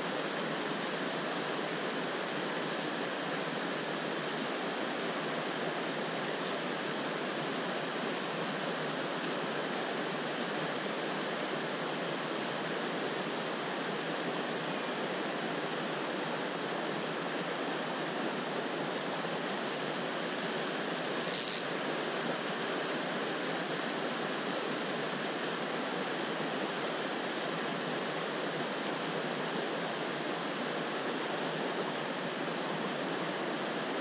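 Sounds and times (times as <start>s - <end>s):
stream water rushing: 0.0s - 34.0s.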